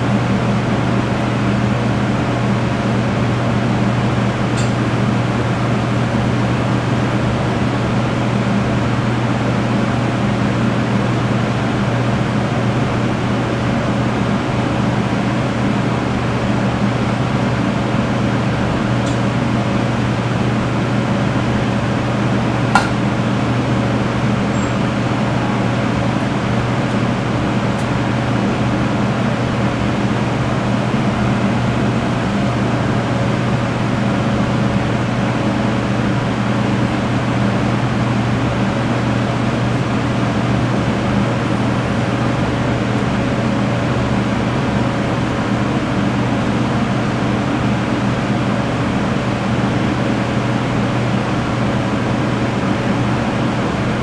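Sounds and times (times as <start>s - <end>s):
kitchen fans humming: 0.0s - 54.0s
sharp click: 22.8s - 23.0s.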